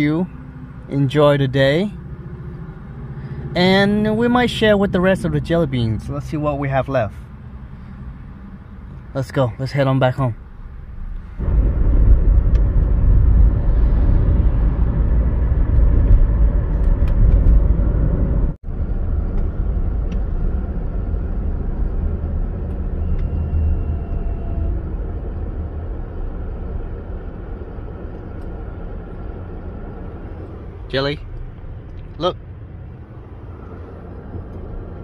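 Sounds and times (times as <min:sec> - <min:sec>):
car cabin road and engine noise: 0:00.0 - 0:35.0.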